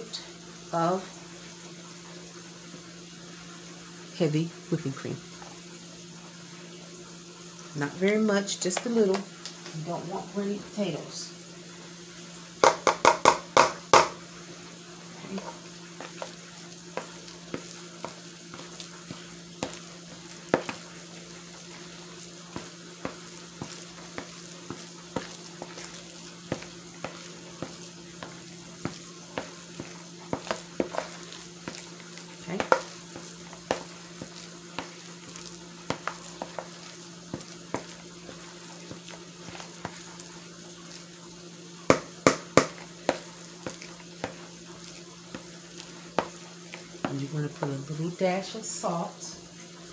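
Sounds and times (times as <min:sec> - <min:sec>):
faint frying hiss: 0:00.0 - 0:49.9
spoon knocking against bowl: 0:12.6 - 0:14.1
spoon scraping bowl: 0:23.1 - 0:40.2.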